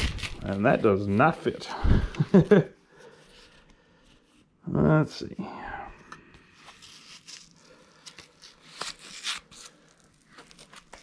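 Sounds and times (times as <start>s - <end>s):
tool wrap rustling and crackling: 0.0s - 2.4s, 6.5s - 11.0s.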